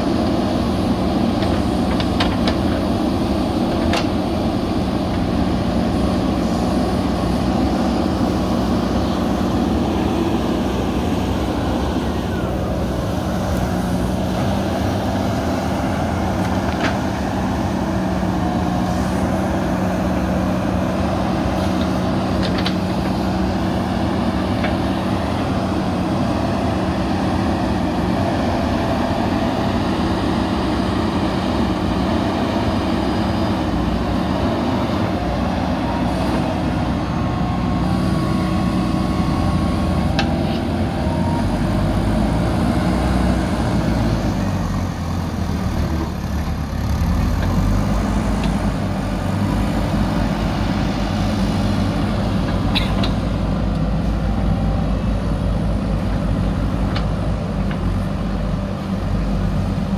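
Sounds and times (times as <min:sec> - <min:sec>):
diesel engine under load: 0:00.0 - 0:59.9.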